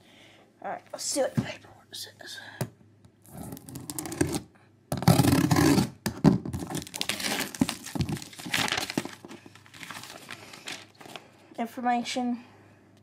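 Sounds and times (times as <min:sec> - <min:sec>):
plastic pouch tearing: 0:03.3 - 0:04.4, 0:06.6 - 0:11.2
plastic crinkling: 0:06.6 - 0:11.3.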